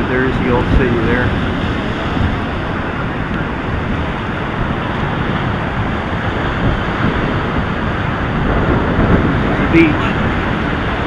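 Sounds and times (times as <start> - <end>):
surf washing onto beach: 0.0 - 11.0
wind buffeting microphone: 0.0 - 11.0.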